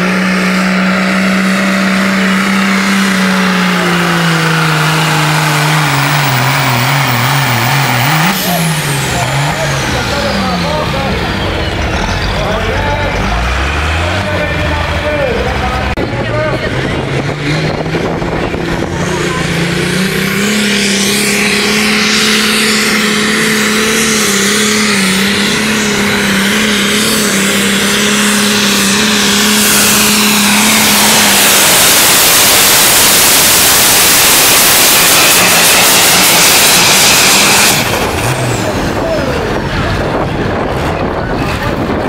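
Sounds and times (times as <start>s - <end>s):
diesel tractor engine at full throttle: 0.0s - 42.0s
loud rushing noise: 0.0s - 42.0s.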